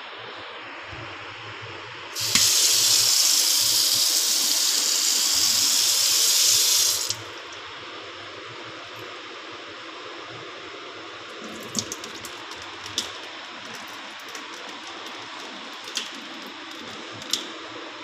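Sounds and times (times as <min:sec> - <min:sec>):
tap water running into sink: 0:02.2 - 0:07.4, 0:11.3 - 0:17.5.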